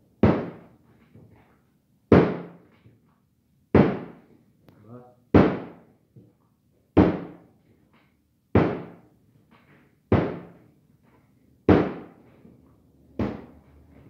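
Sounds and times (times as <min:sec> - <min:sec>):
dough thudding on tabletop: 0:08.5 - 0:09.0, 0:10.1 - 0:10.6, 0:11.7 - 0:12.2, 0:13.1 - 0:13.6.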